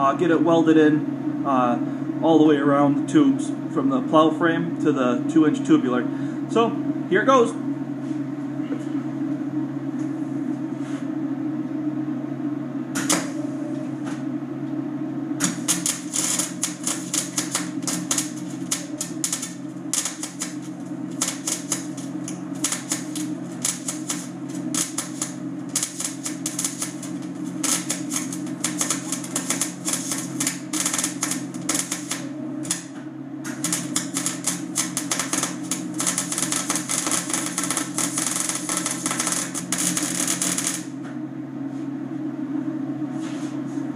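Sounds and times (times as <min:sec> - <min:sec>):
arc welder humming: 0:12.9 - 0:14.3, 0:15.2 - 0:41.2
welding arc crackling and sizzling: 0:13.0 - 0:13.4, 0:15.4 - 0:41.0.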